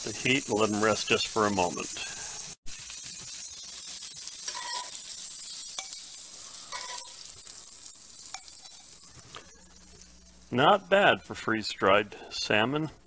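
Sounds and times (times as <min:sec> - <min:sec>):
fish sizzling in a skillet: 0:00.0 - 0:11.6
metal spatula scraping and clinking: 0:01.9 - 0:10.4.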